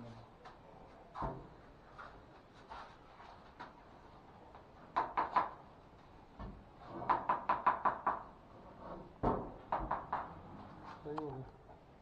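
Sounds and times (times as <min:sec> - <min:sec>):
sharp knocking on wooden cabinets: 0:04.9 - 0:05.6, 0:06.4 - 0:08.3, 0:09.2 - 0:10.4.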